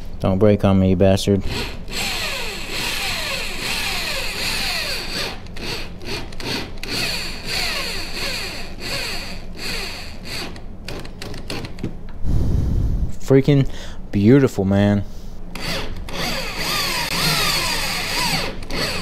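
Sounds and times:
power drill driving screw: 1.5s - 11.6s, 15.6s - 19.0s.

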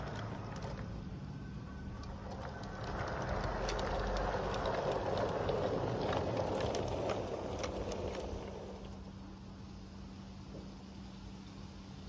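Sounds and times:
wheels clicking over rail joints: 0.0s - 9.6s
model train wheels rumbling: 0.0s - 10.8s.

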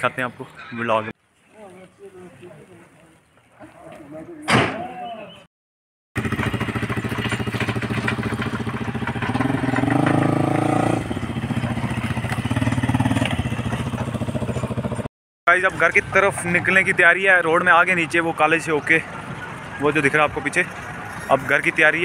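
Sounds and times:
motorcycle engine running: 6.2s - 15.1s.

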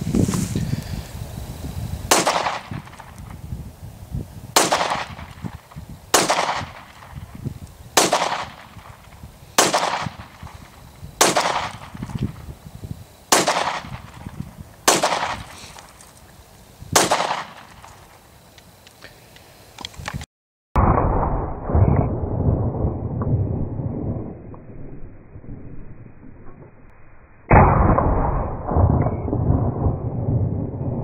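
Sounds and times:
pistol shots with echo: 2.1s - 3.1s, 4.6s - 7.2s, 8.0s - 10.5s, 11.2s - 12.2s, 13.3s - 15.6s, 17.0s - 17.9s.

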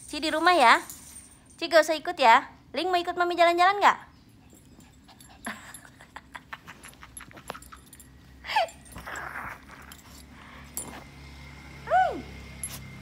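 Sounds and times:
dog whining: 8.5s - 10.3s.

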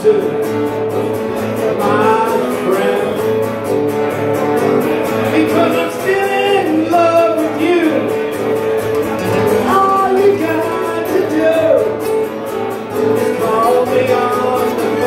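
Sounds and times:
man singing: 0.0s - 4.2s, 5.0s - 15.0s
acoustic guitar strumming: 0.0s - 15.0s.

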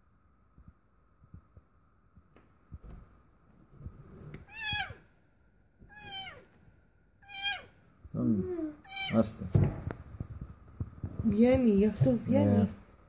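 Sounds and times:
cat meowing: 4.4s - 5.1s, 5.8s - 6.5s, 7.2s - 7.8s, 8.4s - 9.4s.

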